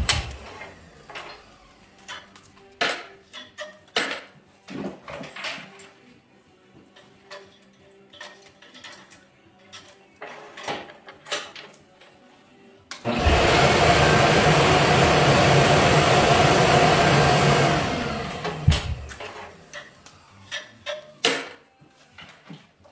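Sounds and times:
shop machine whirring: 0:00.0 - 0:03.1, 0:12.9 - 0:20.0.

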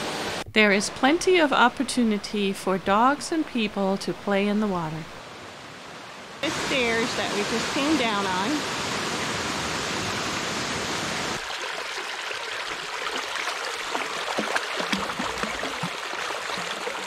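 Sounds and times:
creek and waterfall rushing: 0:04.7 - 0:17.0
dog wading in water: 0:11.4 - 0:17.0.

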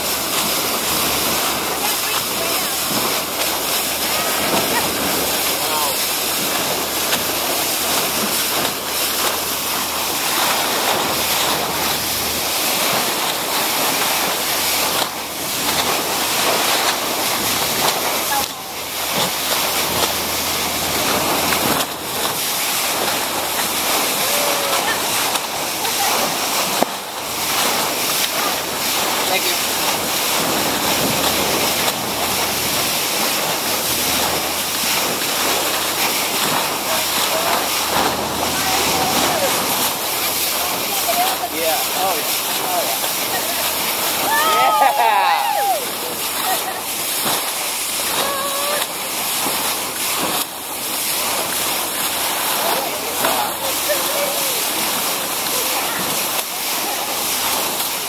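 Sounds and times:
rushing water and spray: 0:00.0 - 0:58.0.

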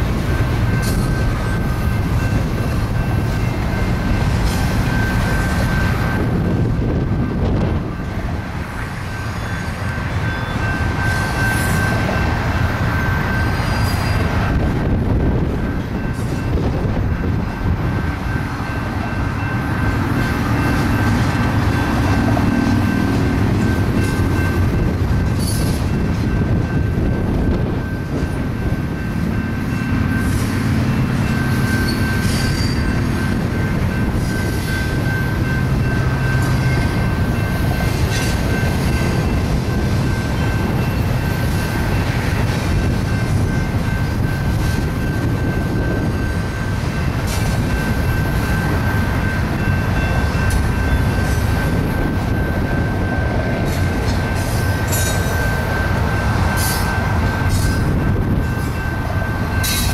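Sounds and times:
train wheels rumbling on rails: 0:00.0 - 0:59.9
high wheel squeal: 0:09.0 - 0:12.1, 0:13.0 - 0:14.4, 0:31.3 - 0:33.1.

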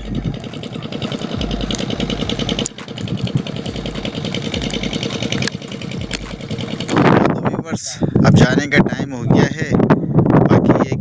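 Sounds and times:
small boat engine putter: 0:00.0 - 0:07.4.

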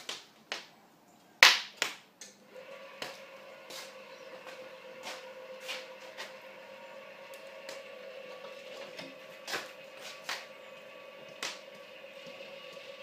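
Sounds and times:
rotisserie motor humming: 0:02.4 - 0:13.0.

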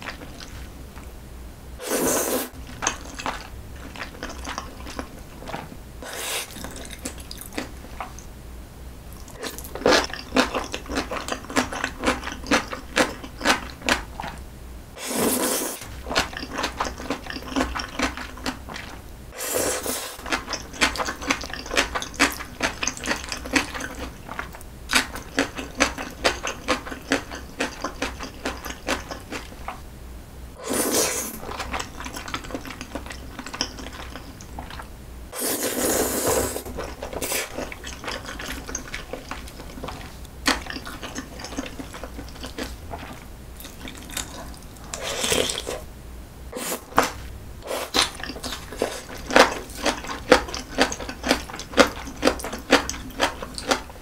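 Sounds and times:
slurping noodles: 0:01.8 - 0:07.5, 0:15.0 - 0:17.6, 0:18.7 - 0:20.3, 0:30.6 - 0:32.8, 0:35.4 - 0:45.8, 0:47.6 - 0:52.1
wet chewing with mouth clicks: 0:02.5 - 0:08.3, 0:09.2 - 0:14.4, 0:15.8 - 0:19.0, 0:20.1 - 0:29.8, 0:31.1 - 0:34.9, 0:36.2 - 0:45.8, 0:46.6 - 0:54.0.

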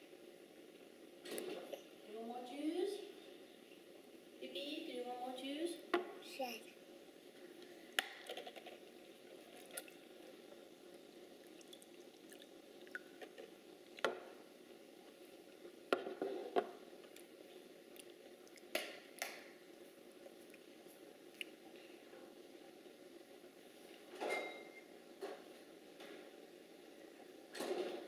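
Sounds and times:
room hiss: 0:00.0 - 0:28.0.

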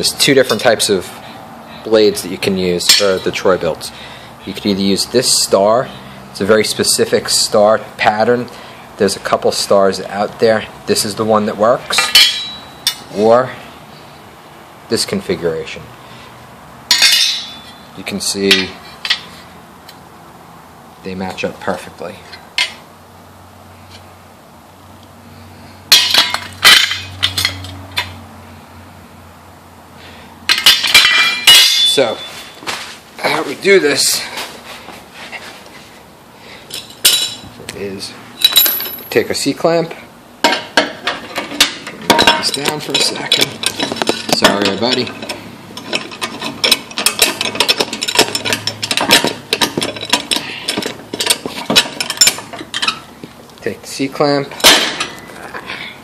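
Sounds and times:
metal blades clanking: 0:02.8 - 0:03.4, 0:11.9 - 0:13.2, 0:16.9 - 0:19.3, 0:25.9 - 0:28.1, 0:30.5 - 0:32.5, 0:40.4 - 0:53.1, 0:54.5 - 0:55.2
metal tools clicking on steel: 0:41.6 - 0:53.0.

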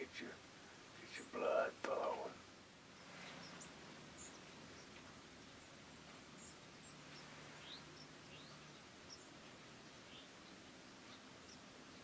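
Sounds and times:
faint high bird chirps: 0:02.9 - 0:12.0.

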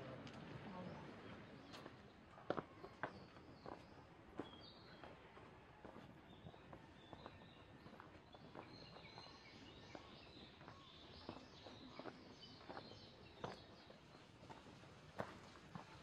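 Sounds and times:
faint birds chirping: 0:06.2 - 0:14.8.

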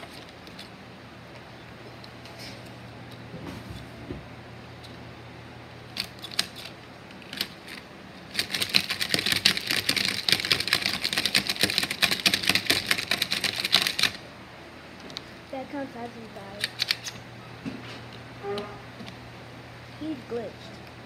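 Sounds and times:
plastic toy figures clacking: 0:07.3 - 0:14.2.

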